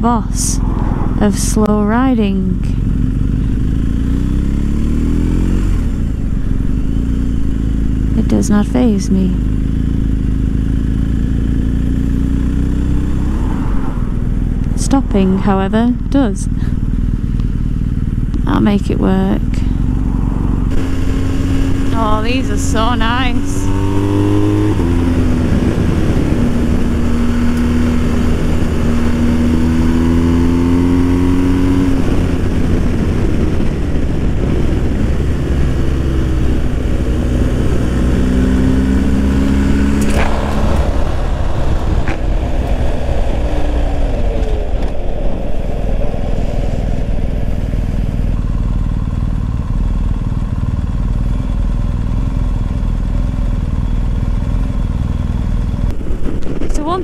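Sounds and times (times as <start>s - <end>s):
wind rumble on microphone: 0.0s - 6.7s, 12.9s - 50.9s, 54.7s - 57.0s
motorcycle engine revving: 0.0s - 57.0s.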